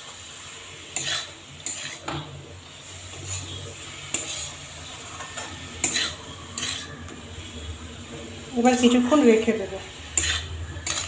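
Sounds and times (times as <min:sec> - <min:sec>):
spatula scraping metal pan: 0:00.9 - 0:07.8, 0:09.9 - 0:11.0.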